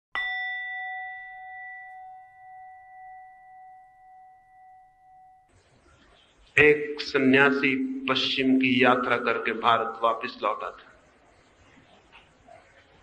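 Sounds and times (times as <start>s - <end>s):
struck bell chime: 0.2s - 5.5s.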